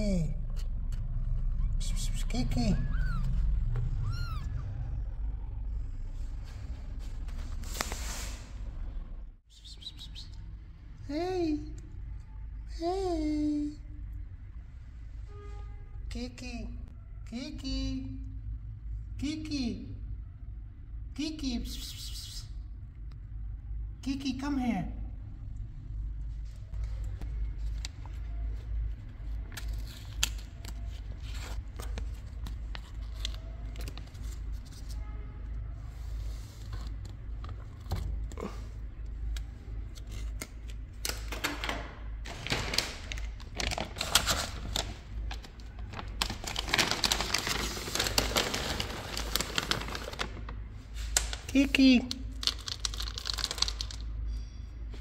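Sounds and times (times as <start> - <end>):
low steady hum: 0.0 - 55.0
rustling and crinkling handling: 42.2 - 51.5, 52.2 - 54.0.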